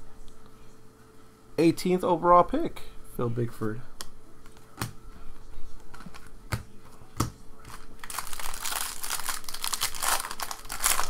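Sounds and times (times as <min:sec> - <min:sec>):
foil wrapper crinkling: 0:07.7 - 0:11.0.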